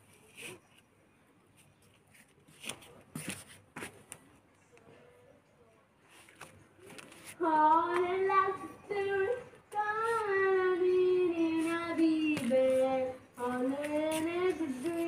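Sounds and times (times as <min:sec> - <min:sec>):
child singing: 0:07.4 - 0:15.0.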